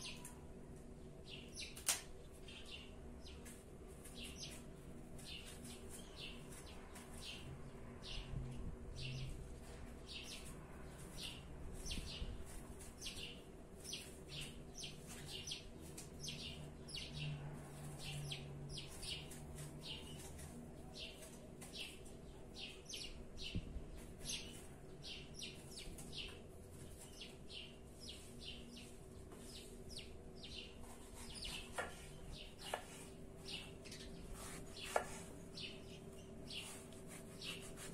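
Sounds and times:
small birds chirping: 0.0s - 37.9s
knife cutting apple on wooden board: 30.8s - 33.7s, 34.3s - 35.4s, 36.6s - 37.9s.

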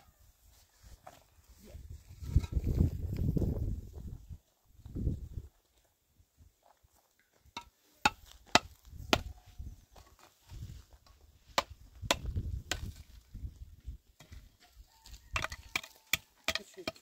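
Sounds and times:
hand tool striking blows: 15.4s - 17.0s.

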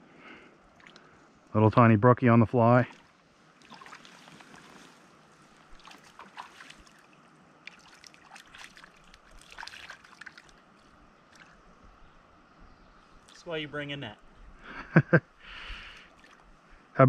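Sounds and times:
stream babbling: 0.5s - 14.3s
hands splashing in water: 3.6s - 5.0s, 5.7s - 7.1s, 7.7s - 10.6s.

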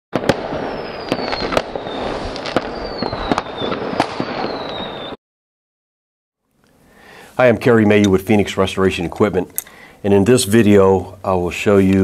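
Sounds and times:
crackling rush with sharp cracks: 0.2s - 5.2s
high sliding whistles: 0.6s - 5.2s.

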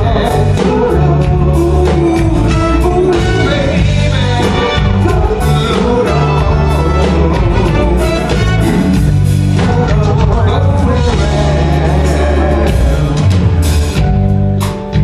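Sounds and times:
soul band playing slow ballad: 0.0s - 15.0s
vocal group singing harmony: 9.5s - 13.4s.

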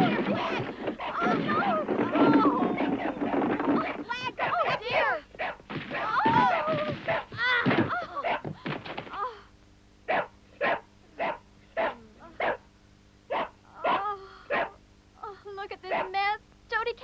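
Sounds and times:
dog yelping cries: 4.3s - 7.4s, 8.1s - 8.5s, 10.1s - 12.6s, 13.3s - 14.8s, 15.9s - 16.2s
dog barking: 4.4s - 7.4s, 8.2s - 8.5s, 10.1s - 12.7s, 13.3s - 14.8s, 15.9s - 16.2s.

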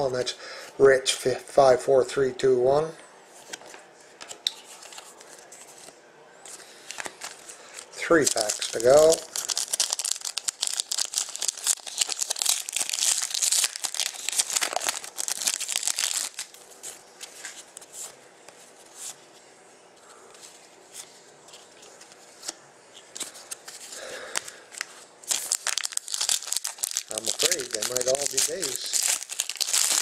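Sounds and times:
cards clicking and rustling: 3.4s - 18.1s, 20.9s - 30.0s
foil wrapper tearing and crinkling: 8.0s - 16.6s, 24.8s - 30.0s.

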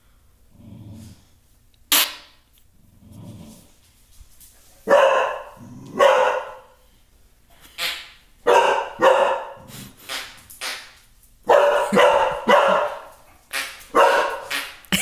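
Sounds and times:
dog grumbling: 0.5s - 1.2s, 5.6s - 6.0s
dog barking loudly: 4.8s - 6.8s, 8.4s - 9.7s, 11.4s - 14.8s.

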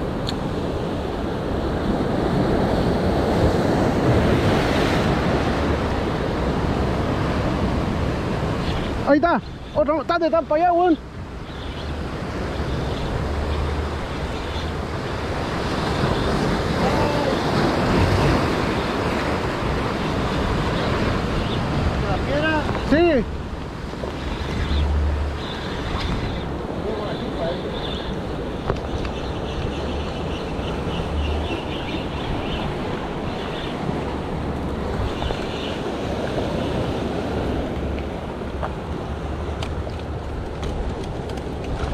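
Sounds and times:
ocean surf breaking over rocks: 0.0s - 41.9s
wind rumbling on microphone: 11.0s - 41.9s.

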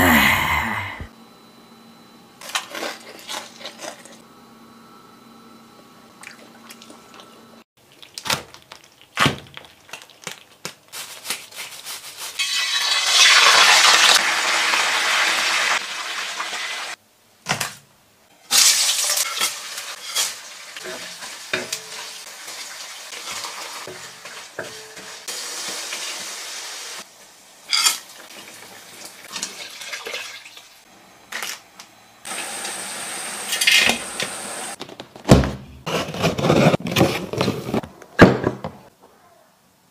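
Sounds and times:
oil sizzling in a wok: 12.1s - 17.0s, 18.3s - 30.9s, 32.2s - 34.8s.

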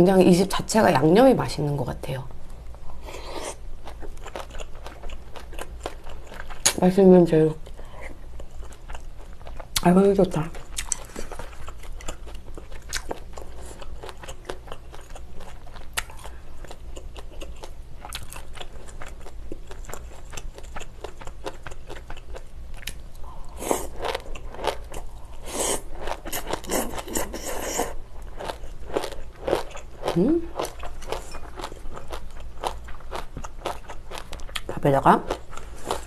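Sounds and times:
wet chewing: 3.4s - 6.8s, 10.5s - 34.7s.

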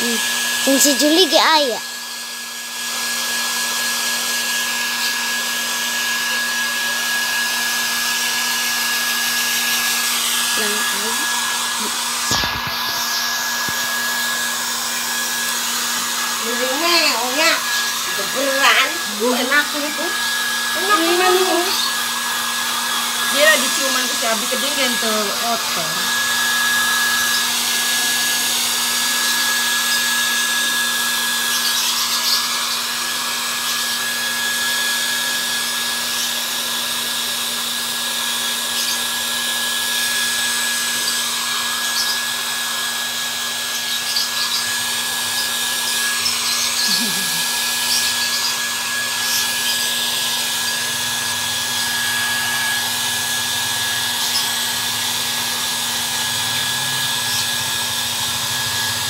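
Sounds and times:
hair dryer running: 0.0s - 59.0s.

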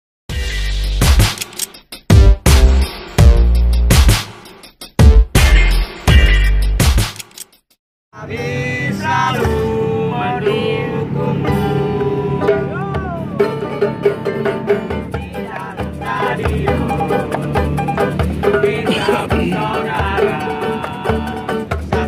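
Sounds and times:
voices singing along: 8.2s - 22.0s
ukuleles and guitar strumming: 8.9s - 22.0s.

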